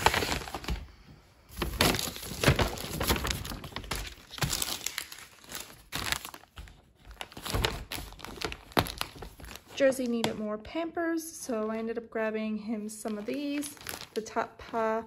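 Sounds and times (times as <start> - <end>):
plastic packaging crinkling: 0.0 - 0.9, 1.5 - 10.1, 13.0 - 15.0
paper bag rustling: 0.0 - 9.8, 13.0 - 15.0.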